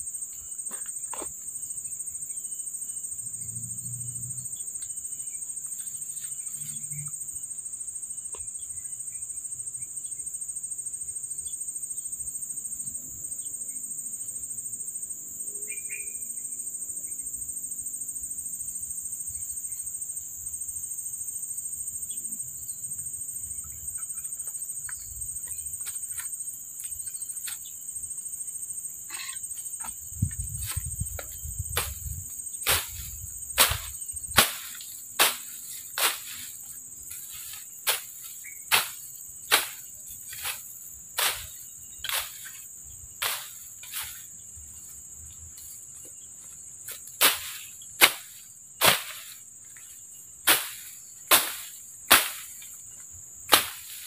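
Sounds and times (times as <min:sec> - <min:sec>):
insects droning: 0:00.0 - 0:54.0
machete chopping grass: 0:30.6 - 0:40.6, 0:41.2 - 0:42.6, 0:43.2 - 0:44.2, 0:47.2 - 0:49.4, 0:50.5 - 0:52.7, 0:53.5 - 0:54.0.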